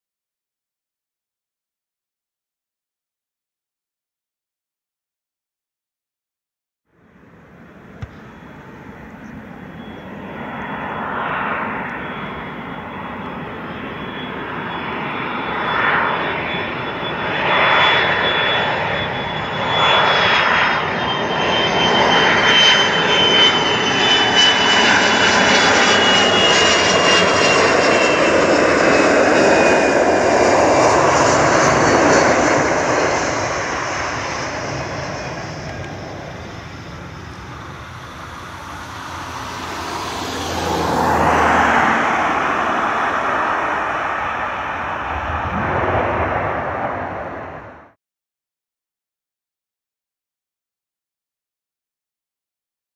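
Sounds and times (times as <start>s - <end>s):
high jet engine whine: 6.9s - 48.0s
jet rumble: 7.0s - 48.0s.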